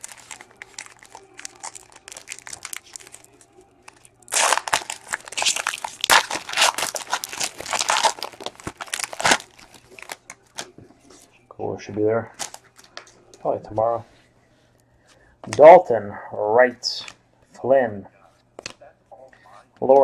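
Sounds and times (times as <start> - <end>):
foil wrapper tearing and crinkling: 0.0 - 10.7, 12.4 - 13.1.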